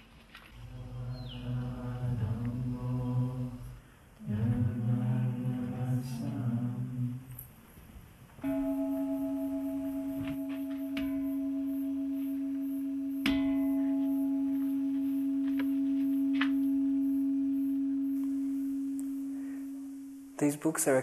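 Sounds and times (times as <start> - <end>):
bronze bell struck with mallet: 8.4 - 20.3.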